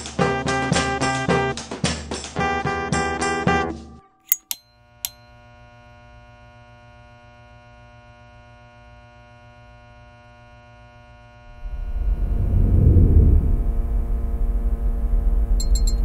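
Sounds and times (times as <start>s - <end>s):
electrical hum: 11.3s - 16.0s
deep rumble: 11.5s - 16.0s.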